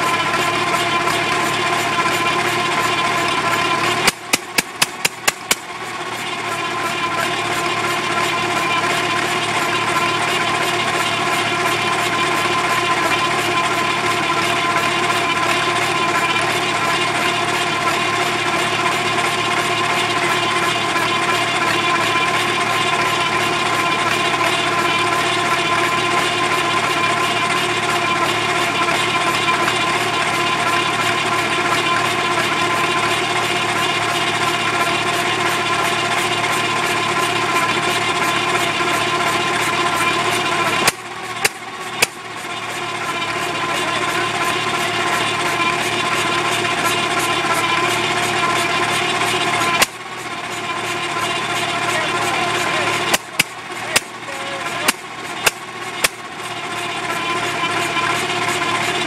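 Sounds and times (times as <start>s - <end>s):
belt-driven engine whining drone: 0.0s - 59.0s
sharp clicks: 4.0s - 5.7s.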